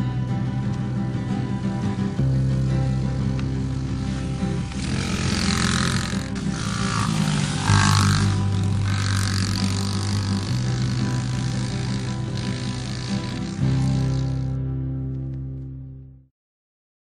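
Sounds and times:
dirt bike engine revving: 2.0 - 14.6.

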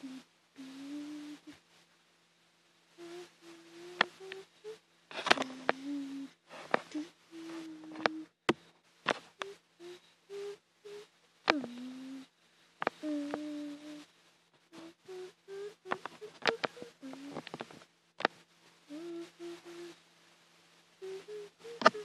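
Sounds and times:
person humming: 0.0 - 1.6, 3.0 - 8.4, 9.3 - 14.1, 14.7 - 17.7, 18.9 - 20.0, 21.0 - 22.0.

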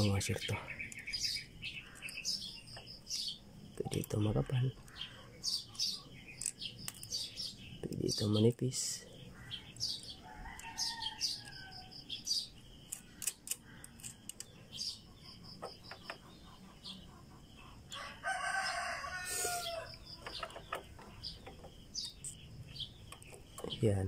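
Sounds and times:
rooster crowing: 10.2 - 12.0, 17.9 - 20.0
small metal parts clicking: 12.9 - 14.5.

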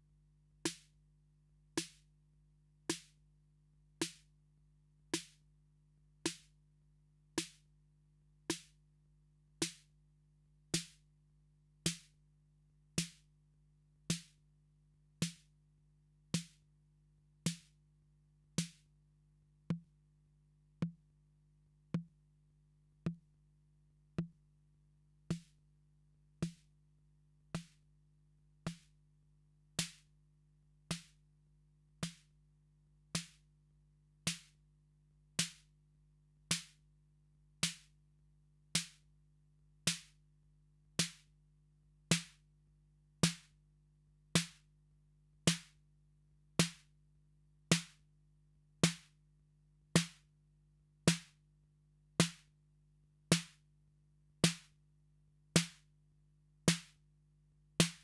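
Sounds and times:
drum machine snare hits: 48.8 - 49.0, 50.0 - 50.2, 51.1 - 51.3, 53.3 - 53.6.

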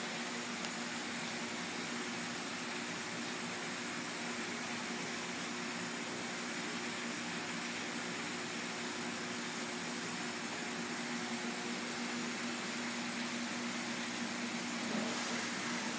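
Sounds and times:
pump humming: 0.0 - 15.9
water moving through filter: 14.1 - 15.9.

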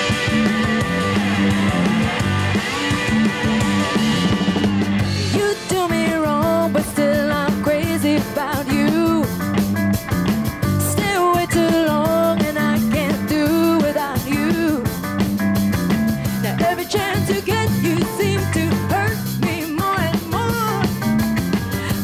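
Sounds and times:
bass guitar: 0.0 - 22.0
drum kit: 0.0 - 22.0
electric guitar: 0.0 - 22.0
woman singing lead vocal: 5.2 - 9.4, 10.8 - 14.9, 16.2 - 21.0.

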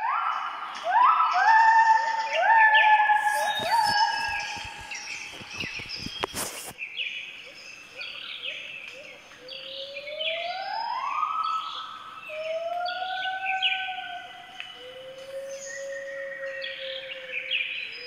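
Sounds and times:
bird chirps: 0.0 - 18.0.

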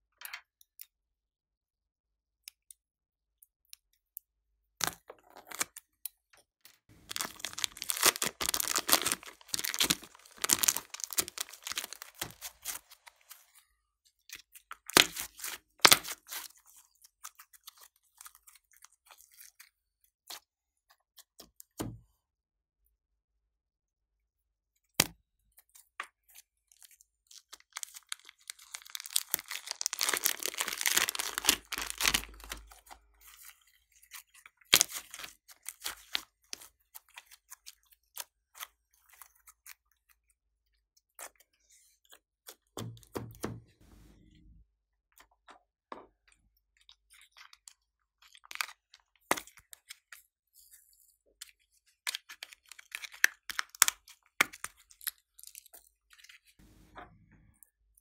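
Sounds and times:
plastic piping bag crinkling: 6.9 - 13.6, 14.8 - 16.6, 27.3 - 33.6.

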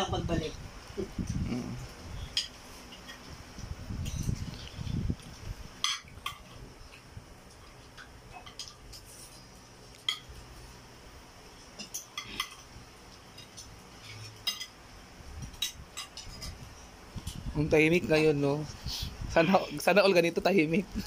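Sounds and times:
cutlery clinking on plates: 5.8 - 6.6, 11.8 - 12.7, 13.3 - 14.8, 15.5 - 16.6.

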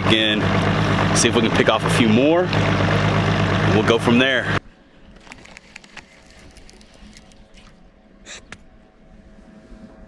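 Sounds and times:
camera handling clicks and rustles: 5.1 - 7.4.

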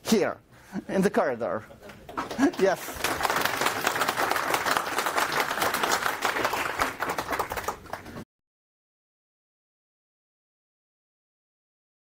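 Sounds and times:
audience applauding: 2.2 - 8.2.

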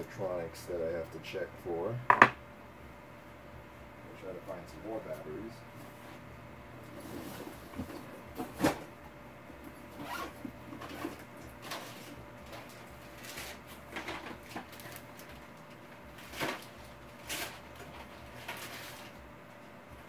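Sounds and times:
objects knocking and clattering: 2.0 - 2.4.

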